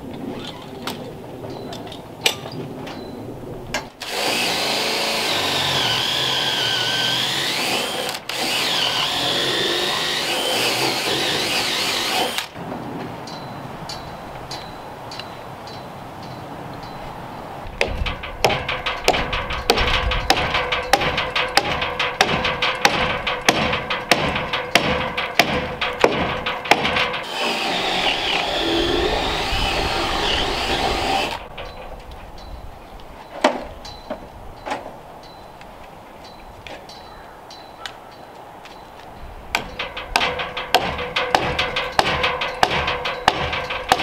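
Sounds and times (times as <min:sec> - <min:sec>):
power tool clacking: 0:04.0 - 0:12.6, 0:17.8 - 0:31.8, 0:39.6 - 0:44.0
power tool whirring: 0:04.0 - 0:12.6, 0:27.2 - 0:31.4
knocks on timber: 0:17.8 - 0:27.3
power tool motor hum: 0:27.2 - 0:31.4.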